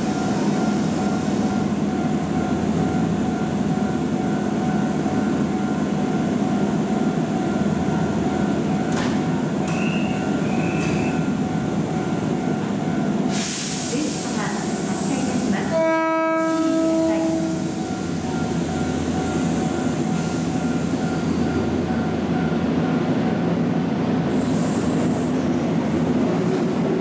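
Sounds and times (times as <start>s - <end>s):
electric train rumble and hum: 0.0s - 27.0s
loud hiss: 13.3s - 15.6s.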